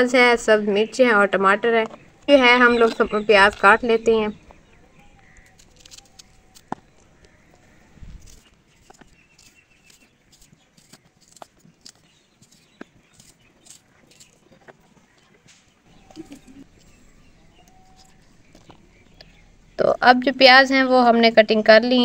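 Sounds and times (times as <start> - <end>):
knife slicing an onion: 5.1 - 7.4, 8.0 - 14.4.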